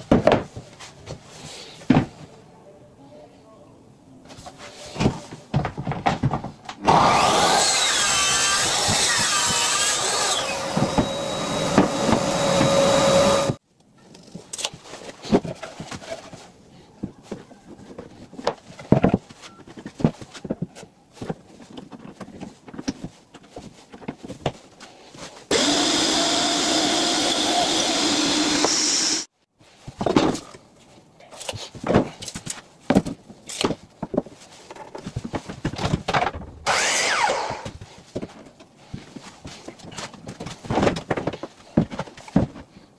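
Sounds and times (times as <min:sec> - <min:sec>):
circular saw cutting: 0:06.9 - 0:13.6, 0:25.5 - 0:29.3, 0:36.7 - 0:37.7
power tool running: 0:06.9 - 0:13.6, 0:25.5 - 0:29.3, 0:36.7 - 0:37.7.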